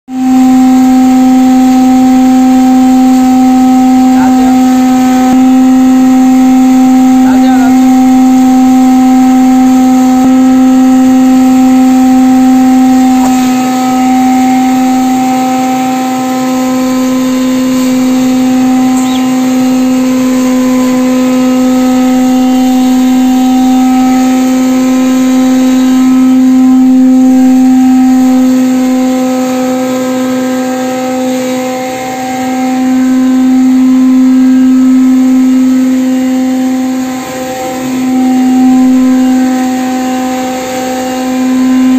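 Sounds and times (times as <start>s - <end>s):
electric grinder humming: 0.2s - 41.9s.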